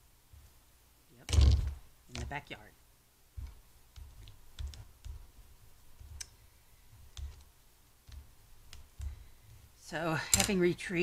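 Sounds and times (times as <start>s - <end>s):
paper and tape clicks and taps: 3.4s - 5.2s, 7.1s - 9.3s.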